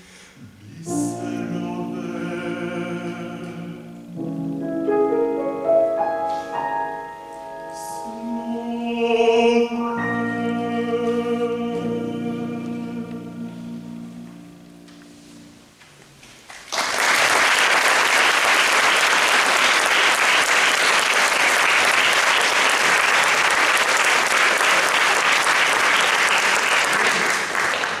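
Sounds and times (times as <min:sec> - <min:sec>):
audience applauding: 0:16.4 - 0:28.0.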